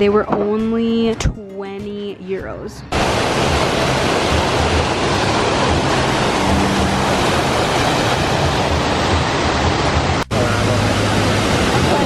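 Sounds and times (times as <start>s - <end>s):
fountain water splashing: 2.9s - 12.0s.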